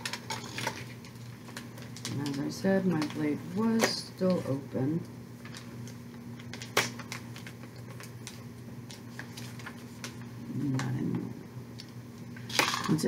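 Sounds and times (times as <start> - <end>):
plastic packets clicking and crinkling: 0.0 - 3.2, 5.4 - 10.3.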